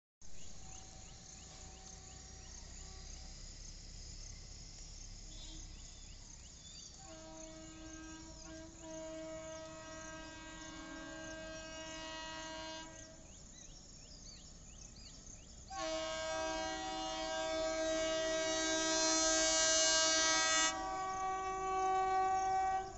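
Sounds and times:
locomotive horn blasts: 5.3 - 5.8, 7.0 - 13.4, 15.7 - 22.9.

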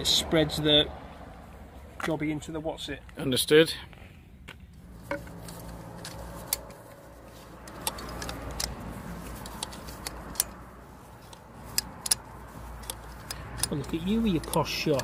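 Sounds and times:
sharp metallic clicks of hand tool: 5.1 - 7.0, 7.6 - 15.0.

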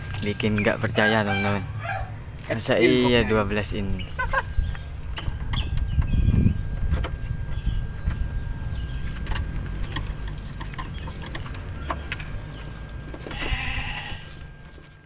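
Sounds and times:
steady low rumble: 0.0 - 15.0
wavering animal call: 13.3 - 14.5.

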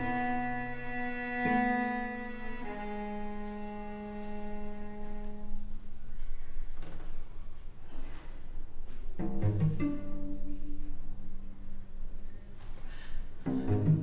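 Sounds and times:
noisy cello bow strokes: 0.0 - 5.8, 13.4 - 14.0
cello bowing sustained notes: 0.0 - 6.0, 9.2 - 12.4, 13.4 - 14.0.

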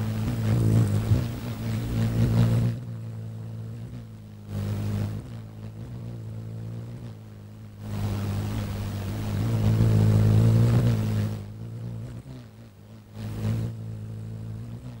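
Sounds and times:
hummingbird wings whirring: 0.0 - 15.0
steady low drone: 0.0 - 15.0.

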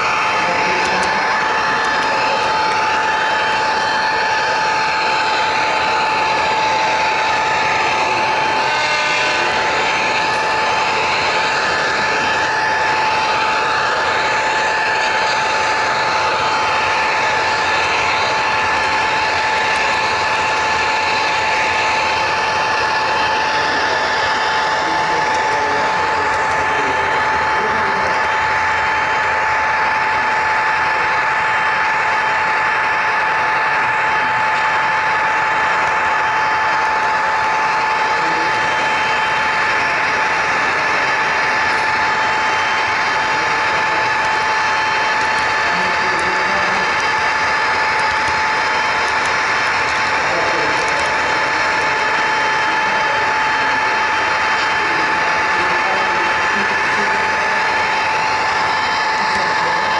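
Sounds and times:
high motor whine: 0.0 - 59.9
model train wheels rolling on rail: 39.7 - 59.9.

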